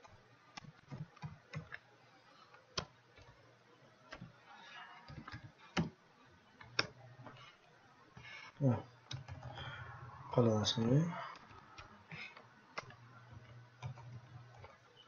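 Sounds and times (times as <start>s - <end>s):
typing on computer keyboard: 0.0s - 1.8s, 9.1s - 9.8s, 11.2s - 14.8s.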